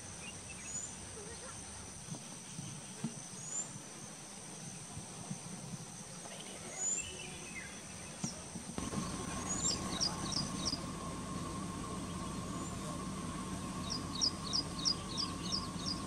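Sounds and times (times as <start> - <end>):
high insect drone: 8.8 - 16.0
steady low hum: 8.8 - 16.0
short bird chirps: 11.6 - 16.0.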